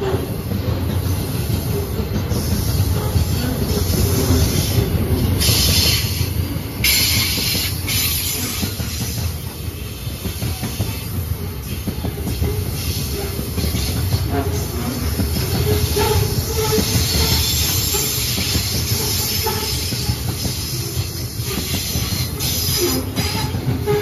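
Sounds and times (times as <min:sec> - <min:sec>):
train wheels rumbling on rail: 0:00.0 - 0:24.0
high wheel squeal: 0:15.4 - 0:24.0.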